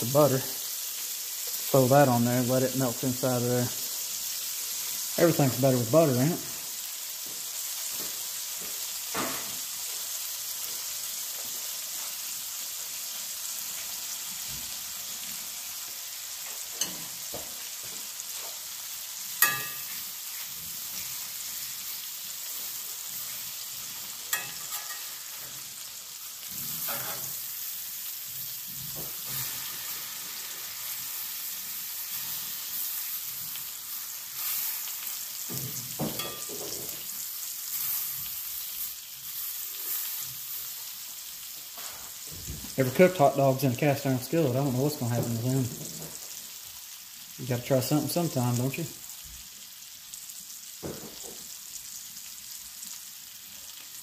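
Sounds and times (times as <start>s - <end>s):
steaks sizzling in a skillet: 0.0s - 54.0s
tongs knocking against skillet: 19.4s - 20.0s, 24.3s - 25.2s, 35.5s - 37.0s.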